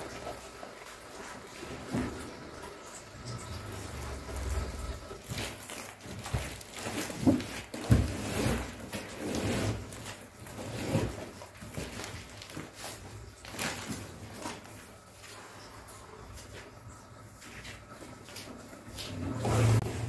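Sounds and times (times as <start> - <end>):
plastic wrap crinkling: 4.0 - 15.5.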